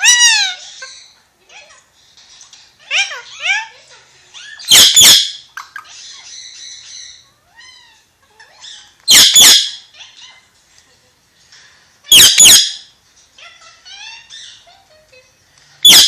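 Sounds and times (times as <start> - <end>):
parakeet squawking: 0.0 - 1.2, 2.8 - 10.5, 12.1 - 14.9, 15.8 - 16.0.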